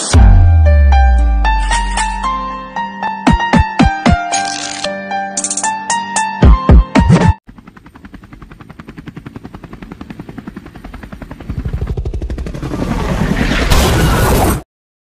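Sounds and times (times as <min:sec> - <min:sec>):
helicopter rotor chop: 0:06.9 - 0:14.6
helicopter crashing rumble: 0:07.5 - 0:14.6.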